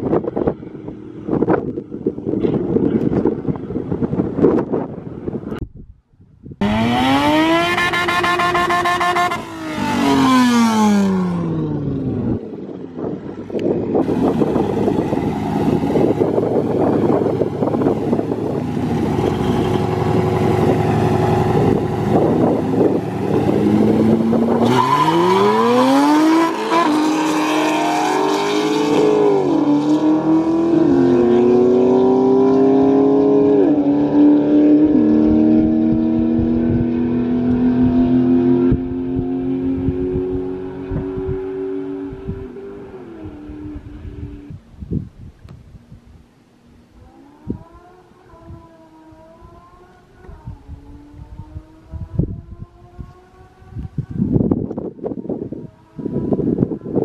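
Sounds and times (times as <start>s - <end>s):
car engine revving: 6.6s - 12.4s, 13.6s - 44.5s
car engines accelerating through gears: 6.6s - 12.4s, 14.0s - 44.5s.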